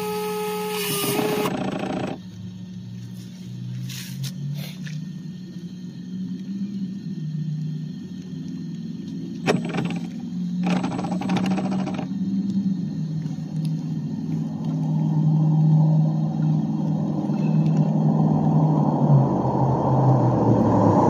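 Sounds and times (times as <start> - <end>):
toy truck motor droning: 0.0 - 2.2, 9.5 - 12.2.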